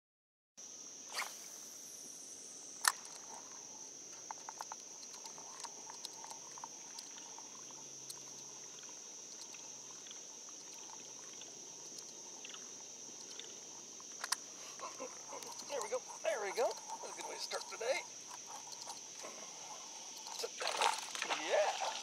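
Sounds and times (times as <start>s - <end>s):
insects droning: 0.6s - 22.0s.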